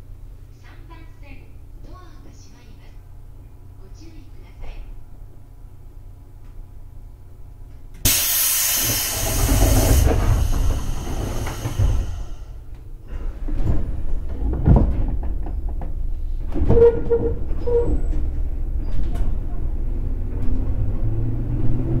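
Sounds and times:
low train rumbling: 0.0 - 22.0
compressed air hiss from train: 8.0 - 12.6
train knocks: 8.0 - 12.6.

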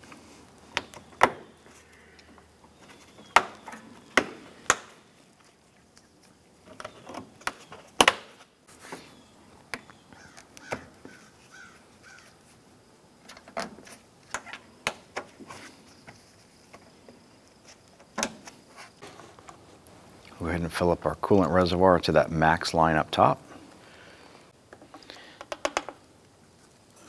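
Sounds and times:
plastic squeaks: 6.6 - 9.2.

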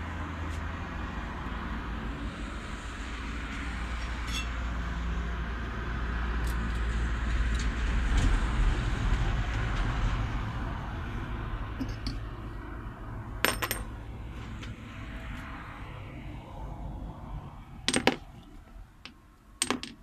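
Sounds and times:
steel disc clinking on metal table: 11.8 - 12.2, 13.4 - 13.9, 19.6 - 20.0.

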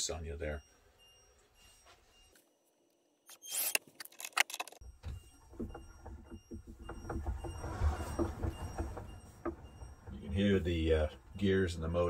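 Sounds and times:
low rumble of gears and motor: 4.8 - 12.0.

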